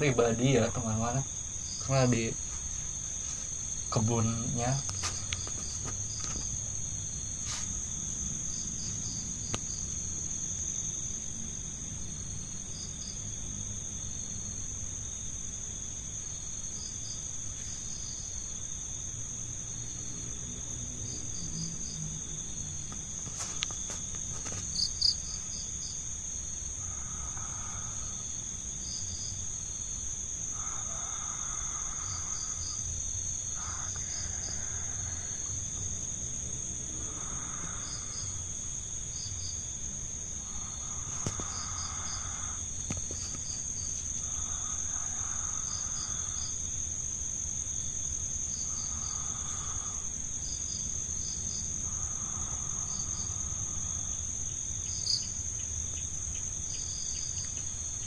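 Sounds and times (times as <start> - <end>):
crickets chirping: 0.0 - 58.0
high-pitched insect drone: 0.0 - 58.0
faint low animal call: 30.5 - 32.8.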